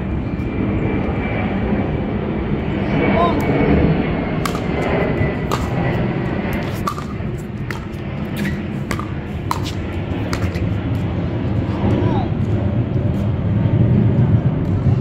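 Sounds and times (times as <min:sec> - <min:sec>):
low background rumble: 0:00.0 - 0:15.0
pickleball paddle pops: 0:05.5 - 0:05.7, 0:06.8 - 0:07.1.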